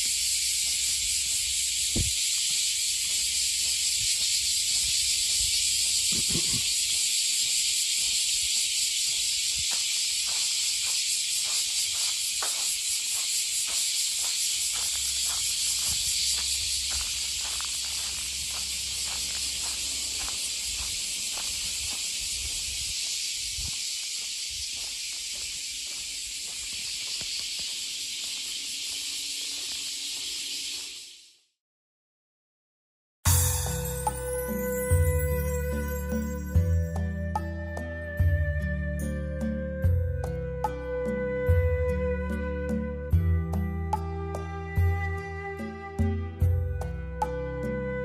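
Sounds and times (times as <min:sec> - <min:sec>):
faint footsteps: 0:00.0 - 0:30.9
cicadas buzzing: 0:00.0 - 0:31.5, 0:33.3 - 0:37.9.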